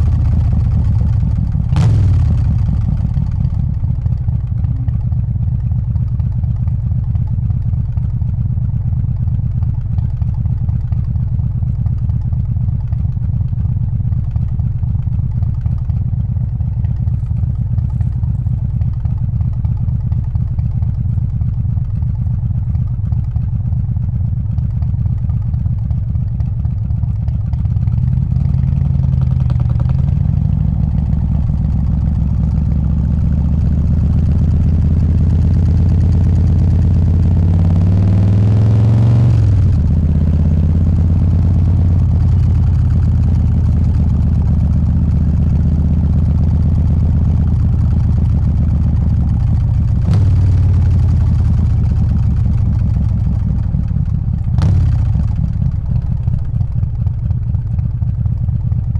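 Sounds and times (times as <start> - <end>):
motorcycle engine running: 0.0 - 58.9.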